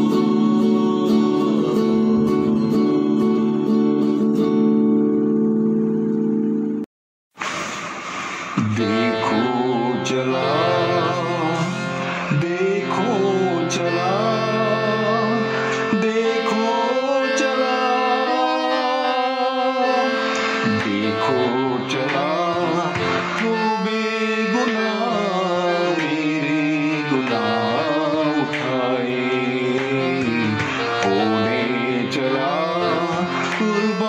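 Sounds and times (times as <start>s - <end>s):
person singing: 0.0s - 4.8s, 8.6s - 34.0s
devotional hymn with instruments: 0.0s - 6.8s, 8.0s - 34.0s
percussion: 21.9s - 23.8s, 29.7s - 31.5s, 32.9s - 34.0s.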